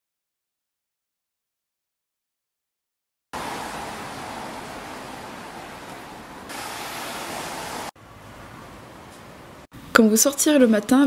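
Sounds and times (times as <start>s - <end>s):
van driving past: 3.4s - 8.6s.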